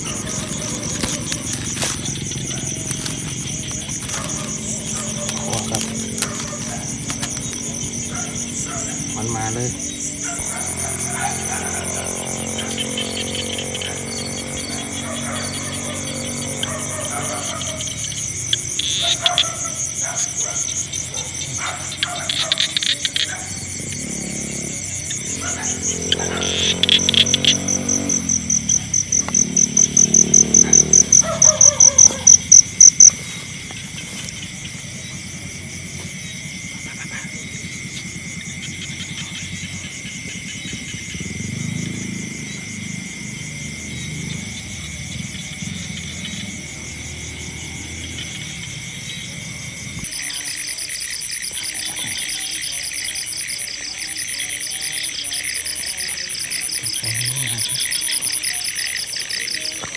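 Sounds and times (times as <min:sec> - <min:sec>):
crickets and insects trilling: 0:00.0 - 0:59.9
insect chirping loudly: 0:00.0 - 0:59.9.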